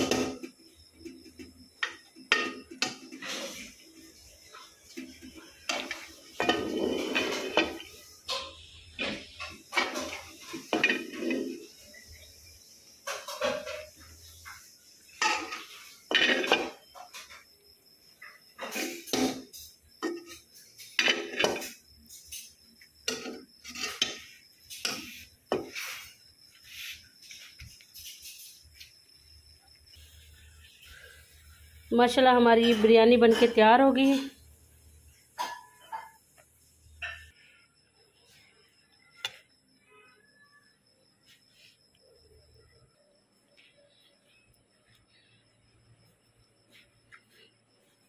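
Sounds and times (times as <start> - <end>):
metal spoon scraping a pot: 5.6 - 12.0, 18.6 - 26.2.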